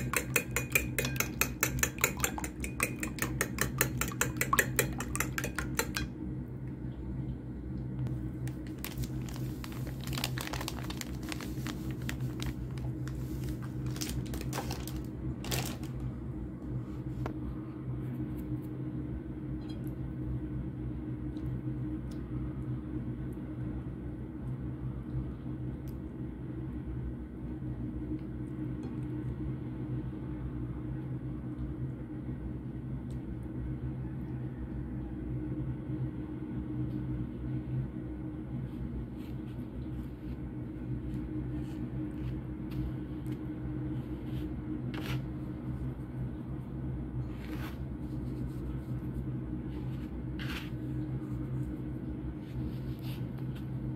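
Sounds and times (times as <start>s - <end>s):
low mechanical hum: 0.0s - 53.9s
breadcrumbs rustling and scraping: 8.4s - 16.0s, 38.7s - 46.0s, 47.2s - 53.9s.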